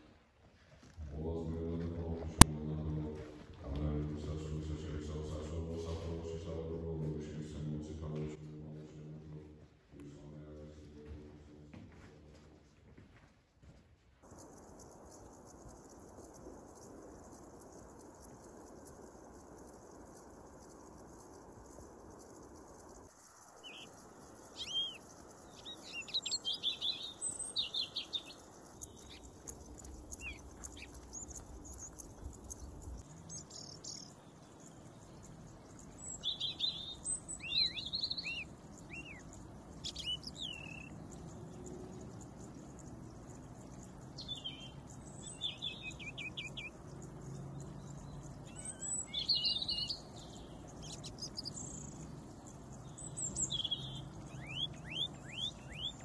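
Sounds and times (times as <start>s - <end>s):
rapid bird trill: 14.2s - 56.0s
small birds chirping and whistling: 14.3s - 56.0s.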